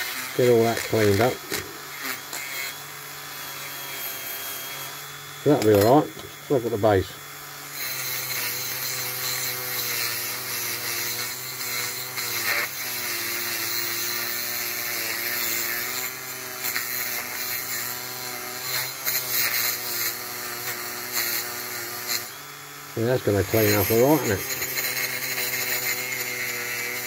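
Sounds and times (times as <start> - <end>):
rotary tool motor whine: 0.0 - 27.0.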